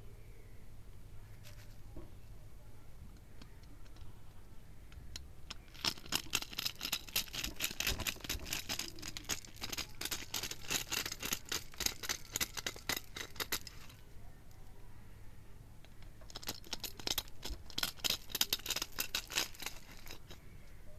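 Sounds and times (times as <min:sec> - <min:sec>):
kernels clattering onto pile: 0:05.5 - 0:14.0, 0:16.3 - 0:20.4.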